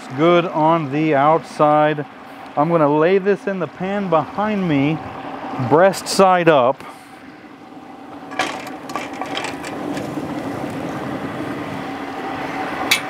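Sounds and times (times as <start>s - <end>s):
steady mechanical hum: 0.0s - 13.0s.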